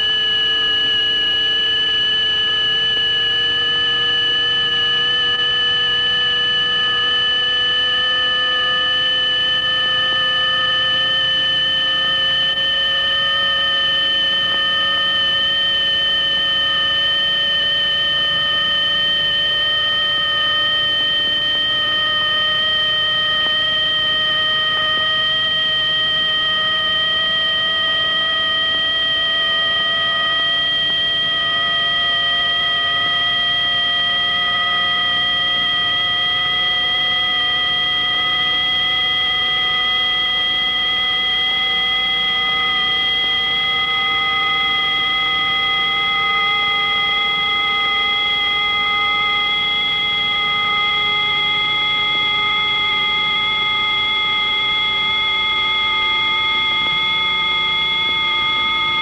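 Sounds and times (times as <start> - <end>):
electronic sine-wave tones: 0.0 - 59.0.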